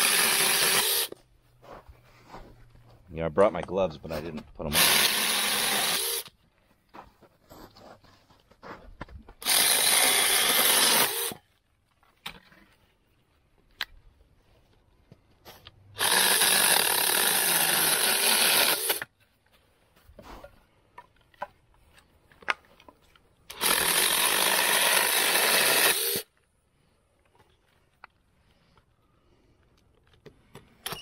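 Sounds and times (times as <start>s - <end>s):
electric mini chainsaw cutting branch: 0.0s - 1.2s, 4.7s - 6.3s, 9.4s - 11.4s, 16.0s - 19.1s, 23.5s - 26.3s.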